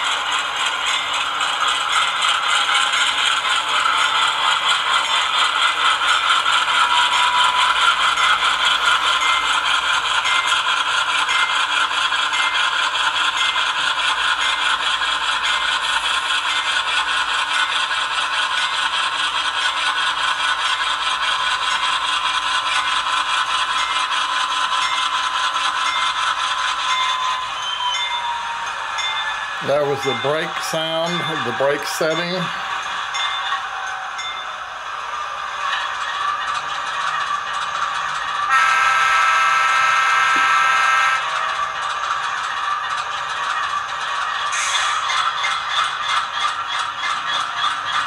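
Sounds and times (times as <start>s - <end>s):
model train wheels clattering: 0.0s - 39.0s, 40.2s - 48.0s
diesel engine sound from speaker: 29.6s - 32.6s.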